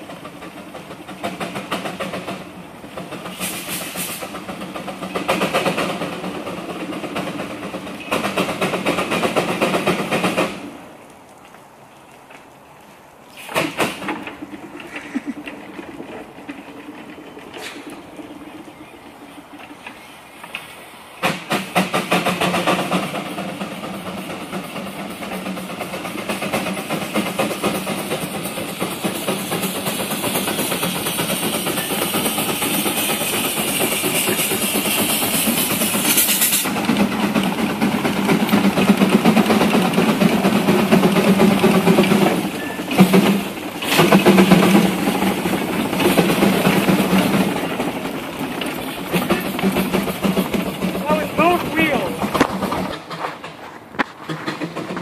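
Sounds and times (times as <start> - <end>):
steam engine exhaust chuffing: 0.0 - 10.7, 13.4 - 55.0
loud hiss of escaping steam: 3.2 - 4.5, 13.3 - 15.4, 20.0 - 39.3.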